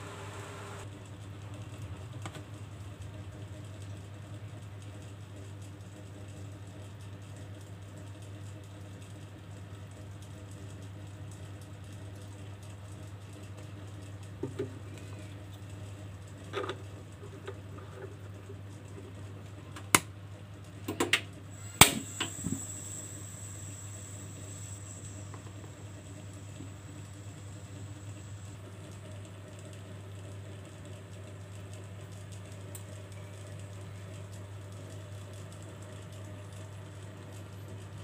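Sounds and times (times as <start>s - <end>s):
steady low hum: 0.0s - 1.2s, 9.1s - 38.0s.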